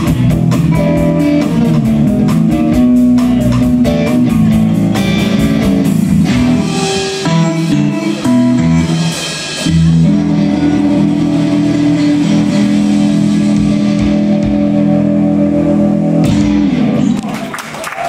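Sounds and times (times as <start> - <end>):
live rock band playing: 0.0 - 18.0
audience applause: 17.1 - 18.0.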